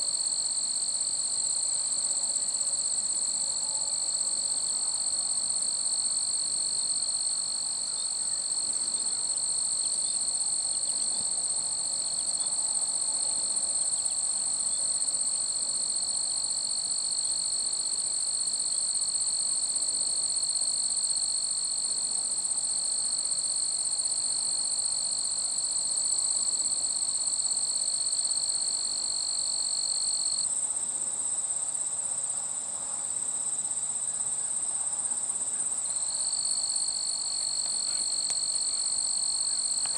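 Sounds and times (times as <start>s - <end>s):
insects trilling: 5.0s - 17.6s, 33.2s - 39.9s.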